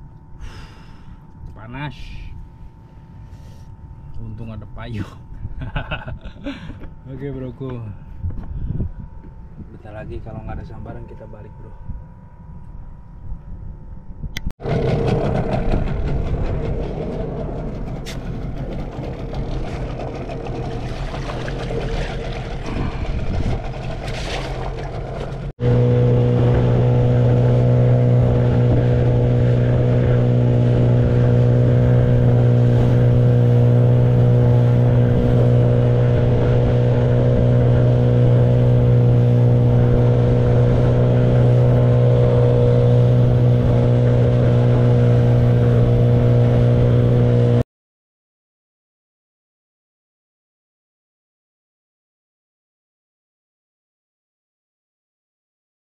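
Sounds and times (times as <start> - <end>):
outboard motor running: 14.6 - 47.6.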